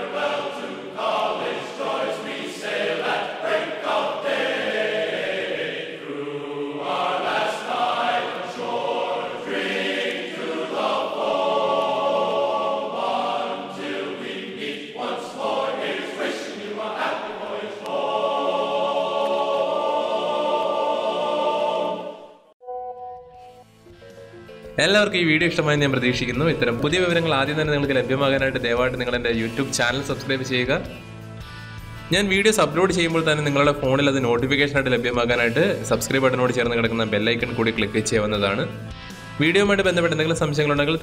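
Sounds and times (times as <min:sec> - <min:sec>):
choir-like singing with music: 0:00.0 - 0:41.0.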